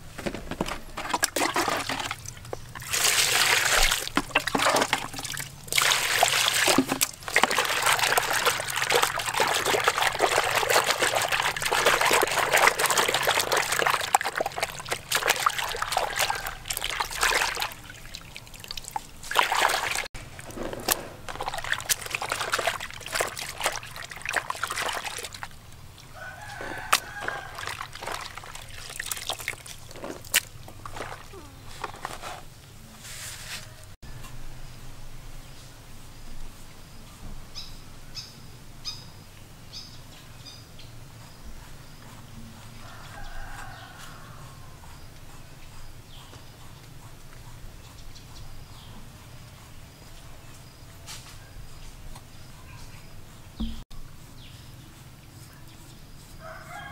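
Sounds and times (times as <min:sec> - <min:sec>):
water sloshing and splashing: 0:00.0 - 0:32.4
wet handling sounds: 0:00.0 - 0:32.6.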